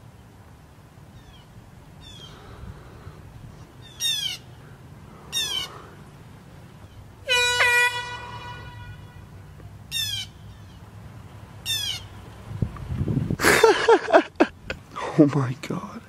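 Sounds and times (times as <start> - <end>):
high falling calls: 1.1 - 10.9, 11.6 - 12.3
air horn blast: 7.2 - 9.3.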